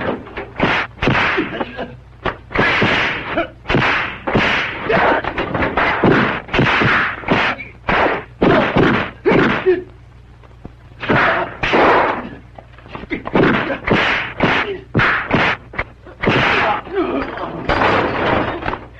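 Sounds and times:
punch and kick whacks: 0:00.0 - 0:01.6, 0:02.2 - 0:09.7, 0:11.0 - 0:12.2, 0:13.2 - 0:16.8
low steady hum: 0:00.0 - 0:18.9.

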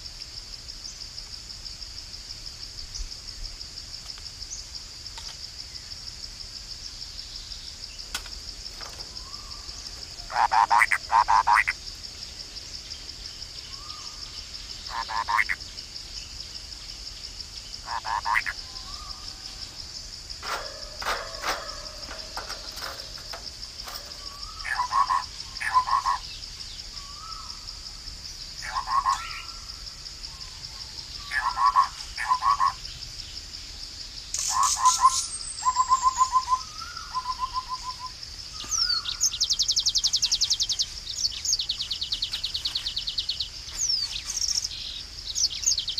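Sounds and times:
high insect drone: 0:00.0 - 0:45.9
pulsed croaking calls: 0:09.1 - 0:11.8, 0:14.8 - 0:15.6, 0:17.8 - 0:26.4
high bird chirps: 0:20.4 - 0:26.3.

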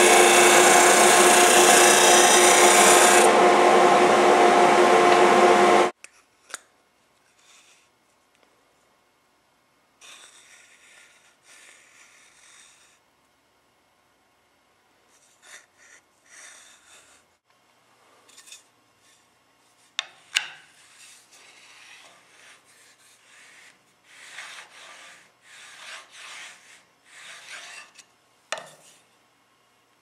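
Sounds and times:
rubbing strokes on wood: 0:20.9 - 0:27.9.

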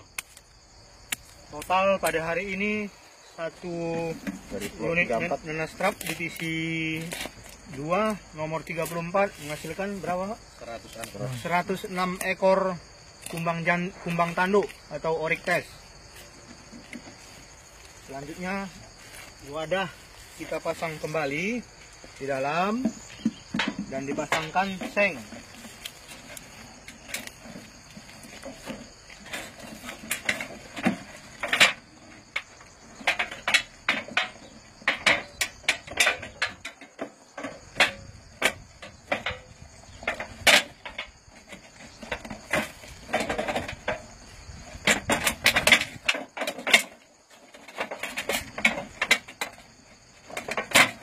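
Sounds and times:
insect chorus: 0:00.0 - 0:51.0
plastic and metal knocks and scrapes: 0:04.0 - 0:06.3, 0:13.2 - 0:51.0.

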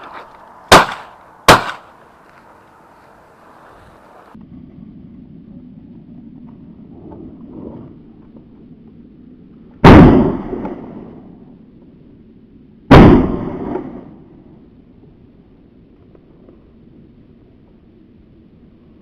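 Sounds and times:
shotgun blasts echoing: 0:00.7 - 0:01.9, 0:09.8 - 0:11.2, 0:12.9 - 0:14.2.

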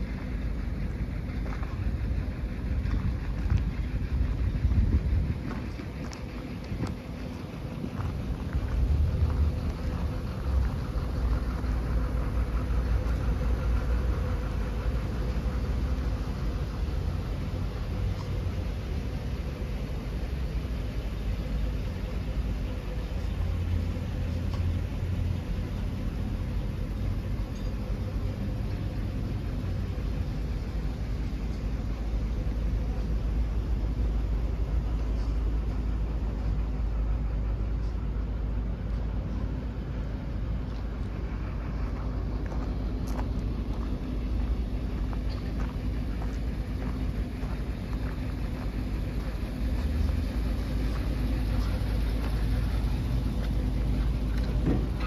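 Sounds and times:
vehicle engine idling: 0:00.0 - 0:55.0
wind rumble on microphone: 0:01.5 - 0:07.1.

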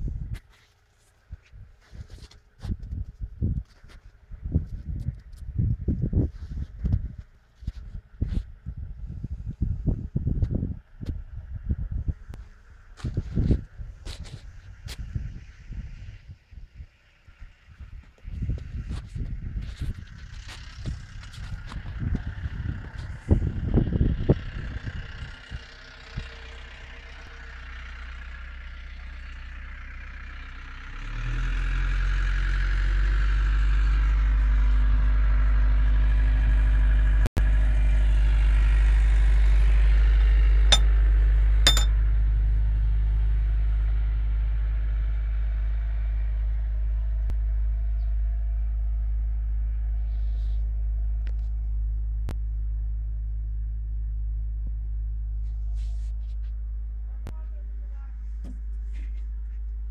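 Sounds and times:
light metallic clinks: 0:41.7 - 0:41.9.

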